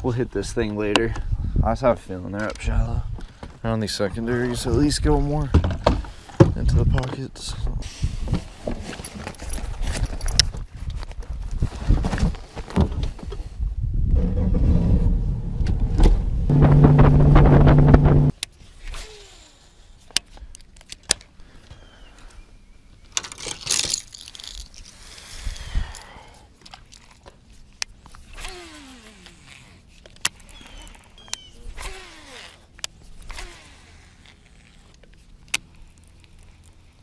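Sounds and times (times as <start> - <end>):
wind rush: 13.6 - 18.3
outboard motor running: 16.5 - 18.3
fishing rod and reel clicks: 27.8 - 36.9.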